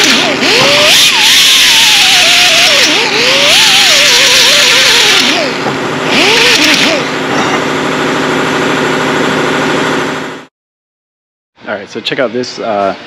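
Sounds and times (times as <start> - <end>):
die grinder hissing and whining: 0.0 - 7.6
machine hum: 0.0 - 10.5.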